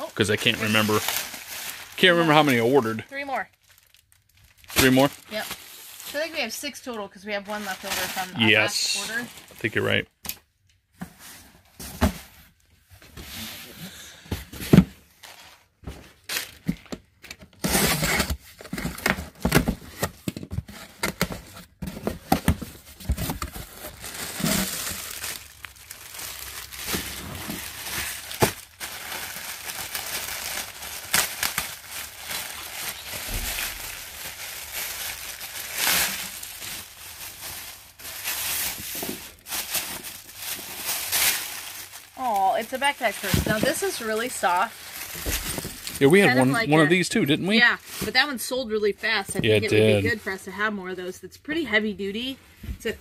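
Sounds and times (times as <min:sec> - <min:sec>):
plastic bags crinkling: 0:00.0 - 0:10.0, 0:22.1 - 0:48.7, 0:49.3 - 0:50.4.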